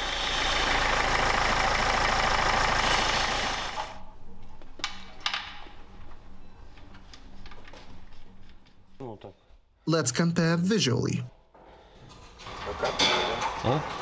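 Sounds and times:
diesel engine idling: 0.0 - 4.0.

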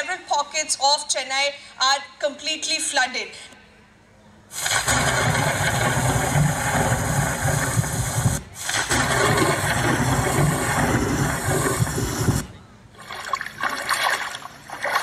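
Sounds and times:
engine sound effect over loudspeakers: 4.6 - 12.5.

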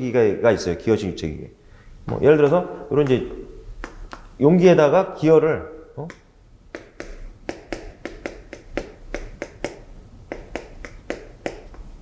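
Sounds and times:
chalk tapping on blackboard: 2.4 - 4.3, 6.1 - 12.0.

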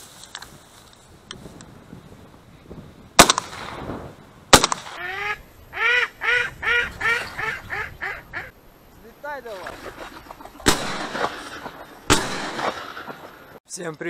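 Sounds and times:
shotgun shots: 3.2 - 5.0, 10.6 - 13.6
duck quacking: 5.0 - 8.5.

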